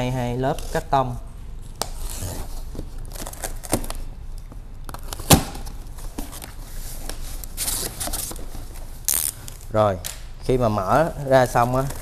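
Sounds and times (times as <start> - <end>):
box cutter slicing tape: 5.0 - 5.7.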